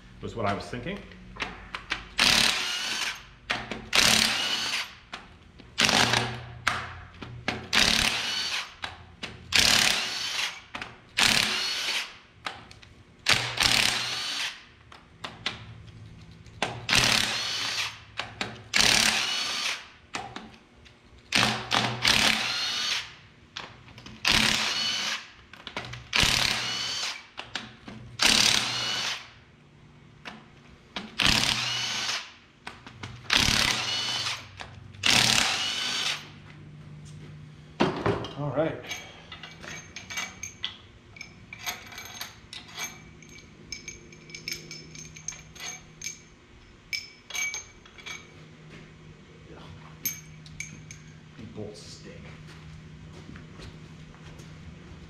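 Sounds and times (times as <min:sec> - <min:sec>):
impact wrench whining: 0:01.4 - 0:12.2, 0:13.2 - 0:14.7, 0:16.6 - 0:20.0, 0:21.3 - 0:23.2, 0:24.1 - 0:27.4, 0:28.2 - 0:29.4, 0:31.0 - 0:32.4, 0:33.1 - 0:36.4.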